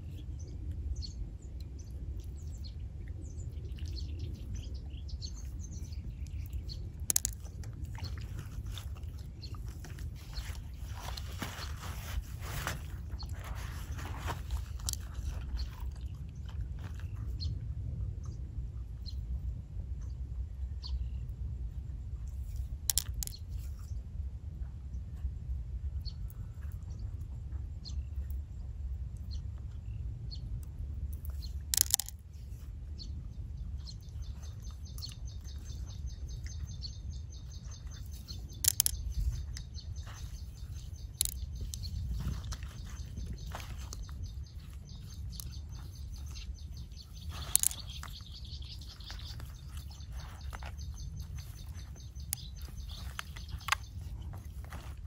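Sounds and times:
low wind rumble on microphone: 0.0s - 55.0s
bird chirping: 31.2s - 55.0s.

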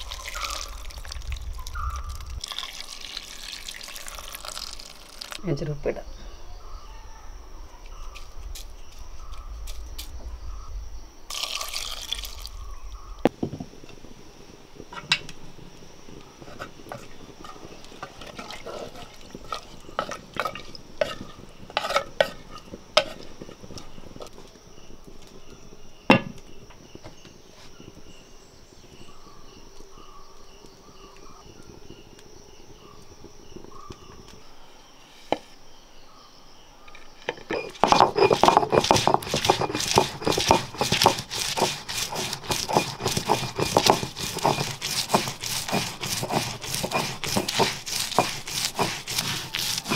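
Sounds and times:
liquid pouring into a pot: 0.0s - 5.4s, 11.3s - 12.6s
spoon stirring wet mixture: 16.4s - 23.9s, 37.6s - 49.9s
knocks against clay pot: 26.1s - 26.4s, 37.3s - 49.0s.

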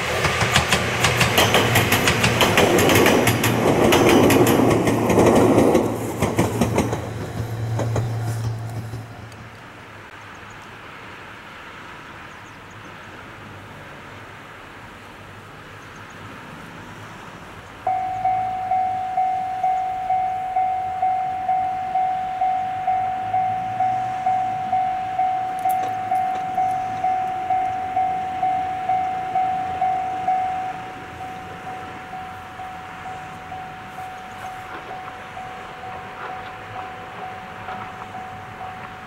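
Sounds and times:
level-crossing warning bell: 17.9s - 39.0s.

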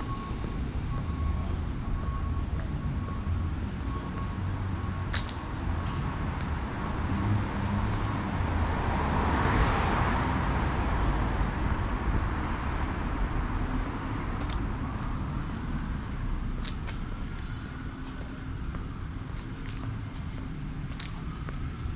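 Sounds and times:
low traffic rumble: 0.0s - 21.9s.

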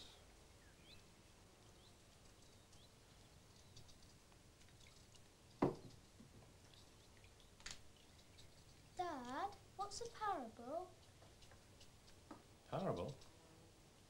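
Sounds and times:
peas shelled and carrots peeled: 2.1s - 13.3s.

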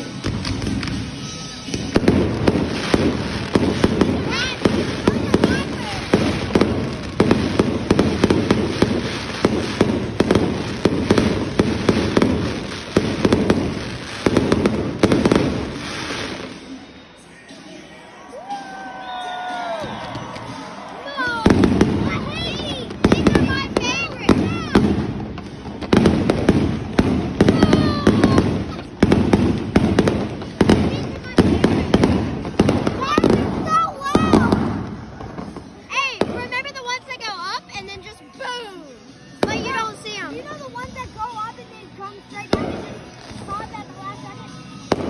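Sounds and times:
fireworks popping and banging: 0.0s - 16.7s, 21.2s - 37.2s, 39.4s - 40.1s, 44.8s - 45.0s.

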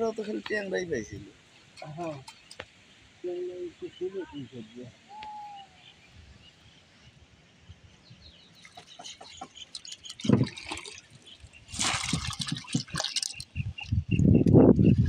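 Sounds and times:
water dripping and splashing: 1.6s - 2.8s, 8.6s - 14.0s.

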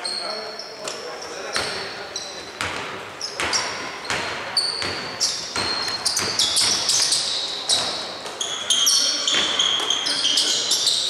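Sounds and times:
sneakers squeaking on floor: 0.0s - 11.0s
basketball bouncing: 2.6s - 8.5s.

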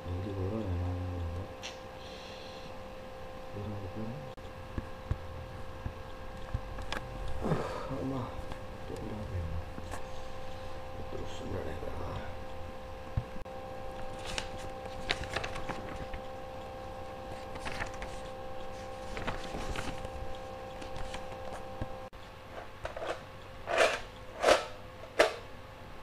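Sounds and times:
steady room hum: 0.0s - 26.0s
faint clicks and rustles: 14.0s - 16.3s, 17.3s - 21.6s.

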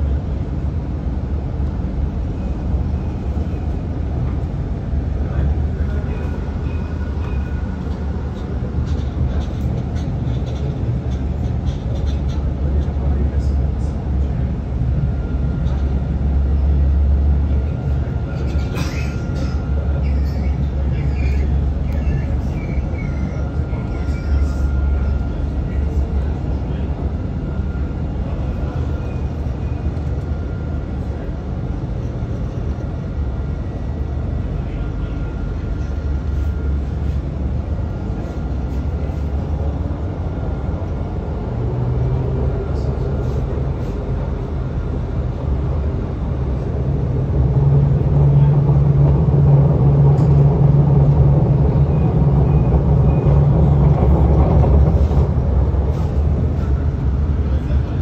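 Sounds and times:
tram rumbling: 0.0s - 58.0s.

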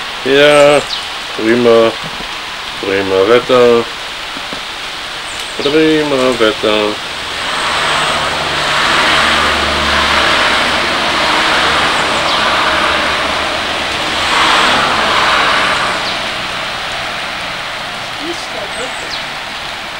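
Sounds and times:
tyres hissing on wet road: 0.0s - 19.9s
low engine hum: 5.6s - 19.3s.

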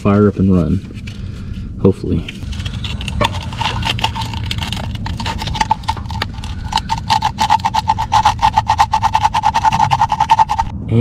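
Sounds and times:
sandpaper scraping metal: 2.5s - 10.7s.

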